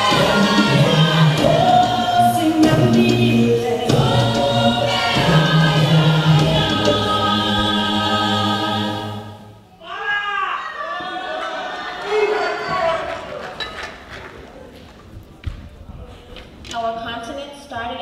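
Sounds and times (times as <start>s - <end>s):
choir singing in harmony: 0.0s - 9.7s.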